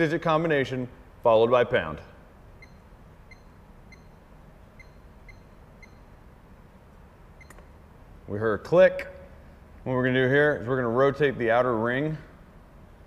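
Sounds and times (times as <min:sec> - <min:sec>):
keypad beeps: 0:02.6 - 0:04.2, 0:04.8 - 0:06.2, 0:07.4 - 0:07.7.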